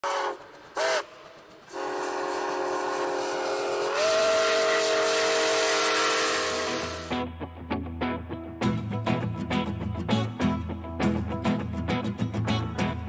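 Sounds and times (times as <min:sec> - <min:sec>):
steam locomotive chime whistle: 0:00.0 - 0:07.2.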